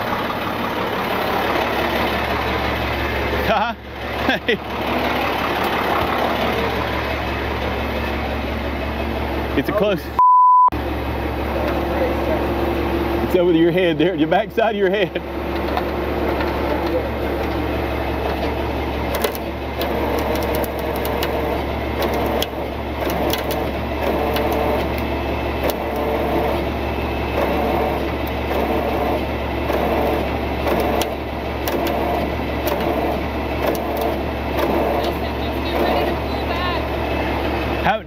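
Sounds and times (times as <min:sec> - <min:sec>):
truck engine running: 0:00.0 - 0:10.2, 0:10.8 - 0:38.0
sharp clicks and ticks: 0:19.1 - 0:26.1.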